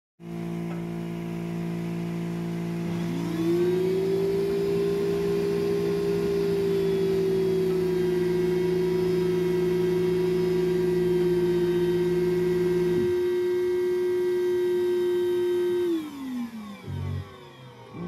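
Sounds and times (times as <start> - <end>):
motor whine: 0.3 - 18.0
low hum: 16.8 - 18.0.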